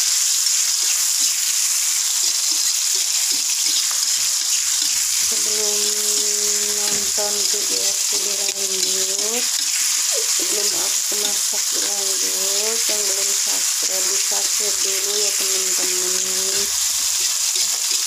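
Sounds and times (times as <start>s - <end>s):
food sizzling in oil: 0.0s - 18.0s
spatula scraping a wok: 12.9s - 18.0s.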